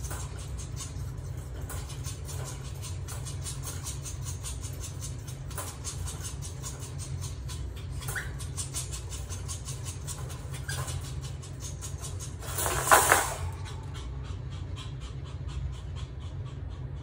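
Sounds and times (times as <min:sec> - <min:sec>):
puppy panting: 0:00.0 - 0:17.0
puppy going over wire pen: 0:11.9 - 0:13.9.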